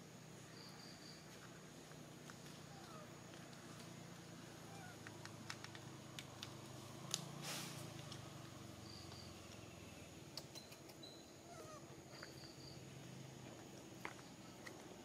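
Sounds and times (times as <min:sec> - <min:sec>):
short rustle: 0:07.4 - 0:08.0.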